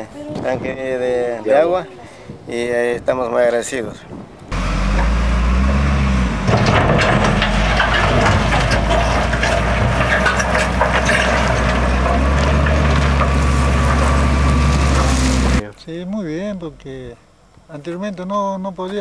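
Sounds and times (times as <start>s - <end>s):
diesel engine under load: 4.5s - 15.6s
stones crunching and crackling: 6.5s - 15.6s.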